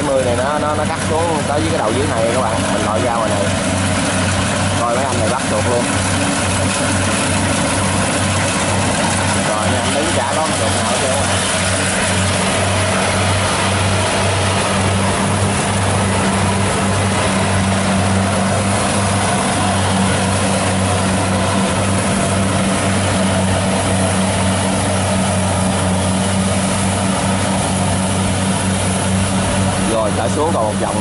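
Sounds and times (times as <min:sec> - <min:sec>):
combine harvester drone: 0:00.0 - 0:31.0.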